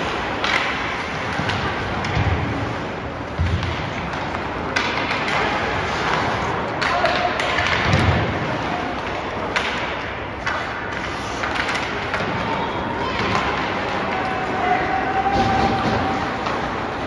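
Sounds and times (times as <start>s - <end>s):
hockey sticks and puck knocking: 0.0s - 14.4s, 15.2s - 17.0s
crowd murmur: 4.4s - 17.0s.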